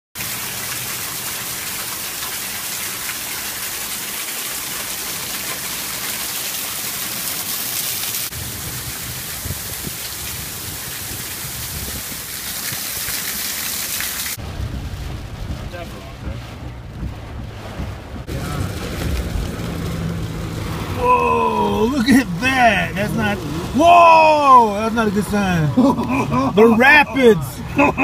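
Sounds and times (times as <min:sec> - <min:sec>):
heavy rain pouring: 0:00.2 - 0:28.0
low rumble: 0:14.4 - 0:21.0.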